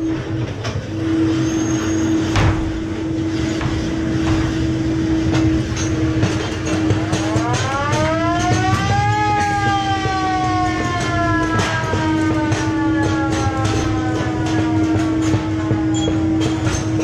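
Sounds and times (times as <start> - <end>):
ride car rumbling along track: 0.0 - 17.0
siren-like wail: 0.0 - 17.0
steady hum: 0.0 - 17.0.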